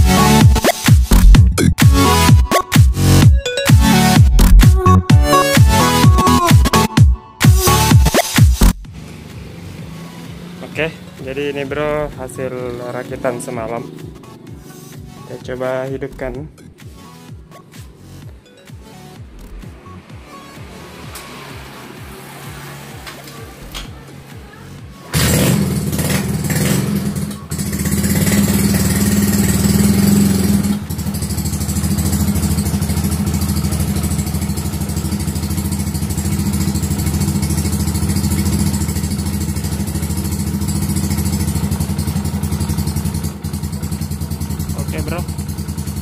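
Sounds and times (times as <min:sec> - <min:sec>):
scooter engine starting and idling: 0:08.8 - 0:14.9, 0:25.0 - 0:46.0.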